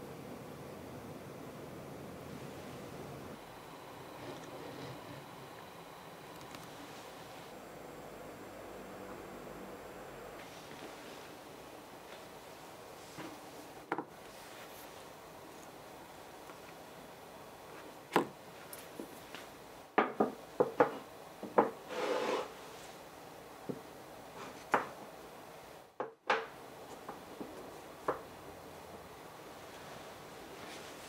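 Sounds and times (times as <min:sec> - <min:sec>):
rustle of rubbing: 0:12.0 - 0:15.8, 0:29.6 - 0:31.0.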